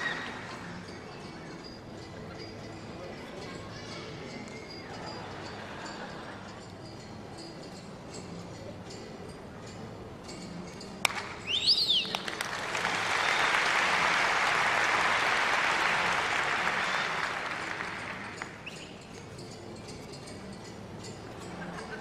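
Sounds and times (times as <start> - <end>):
theatre audience applauding: 11.9 - 18.6.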